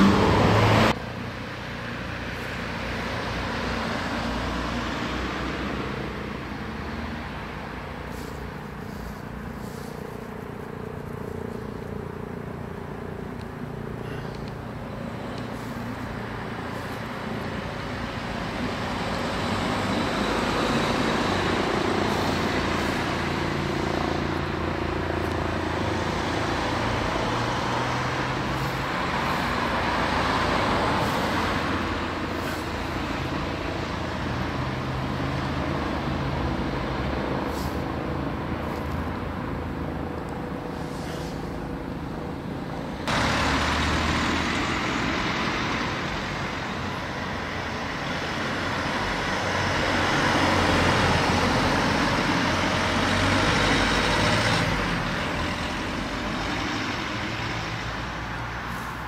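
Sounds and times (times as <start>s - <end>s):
road traffic rushing: 0.0s - 59.0s.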